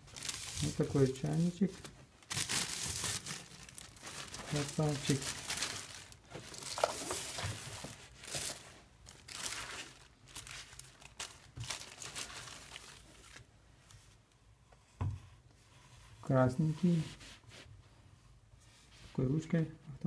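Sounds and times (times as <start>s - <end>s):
plastic packaging crinkling: 0.0s - 13.5s.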